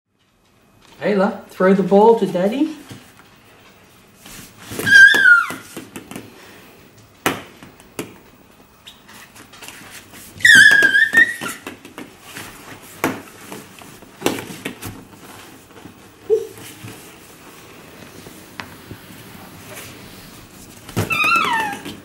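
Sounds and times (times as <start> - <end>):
baby squealing with delight: 4.8 - 5.7, 10.4 - 11.6, 21.0 - 22.0
plastic balls bouncing on wood floor: 4.8 - 6.4, 7.2 - 8.3, 10.4 - 15.1, 20.9 - 22.0.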